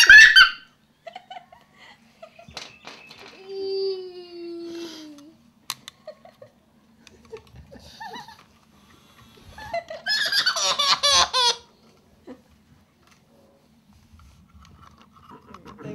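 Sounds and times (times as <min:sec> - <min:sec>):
young boy giggling: 0:06.0 - 0:08.4, 0:09.5 - 0:12.5.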